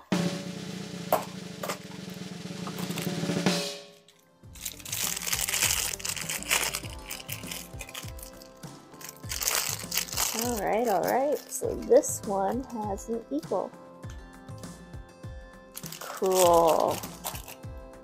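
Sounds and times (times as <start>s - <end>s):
snare drum roll: 0.0s - 3.8s
background music: 0.0s - 18.0s
plastic bags crinkling: 4.1s - 11.7s, 15.8s - 17.6s.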